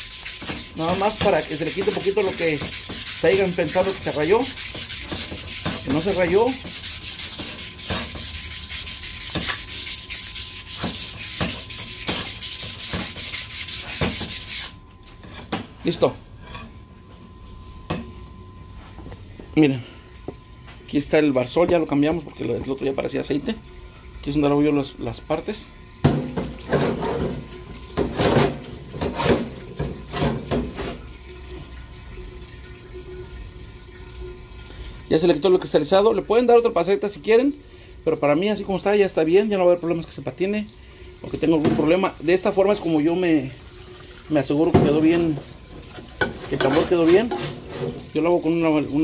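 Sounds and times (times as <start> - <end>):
sandpaper rubbing on metal: 0.0 - 14.8, 46.6 - 47.9
solvent pouring and splashing: 42.6 - 48.9.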